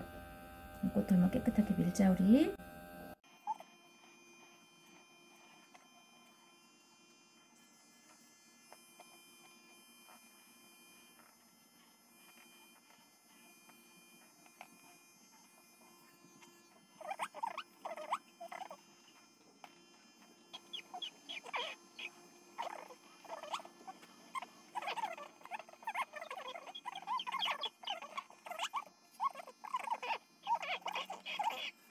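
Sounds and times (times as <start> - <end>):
electric pet trimmer humming: 0.0 - 31.9
dog whimpering: 3.4 - 3.7, 17.0 - 18.8, 20.6 - 23.7, 24.4 - 31.9.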